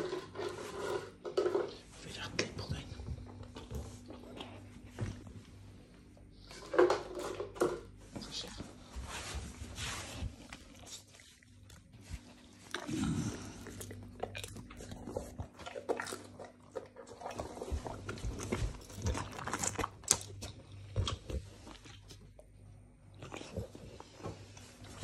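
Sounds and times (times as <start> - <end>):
dog chewing with crunches: 10.1 - 25.0.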